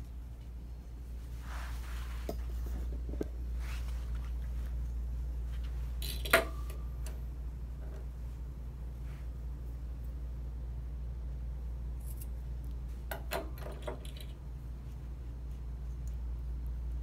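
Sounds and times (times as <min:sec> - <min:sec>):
steady low hum: 0:00.0 - 0:17.0
faint handling rustle: 0:00.1 - 0:06.1.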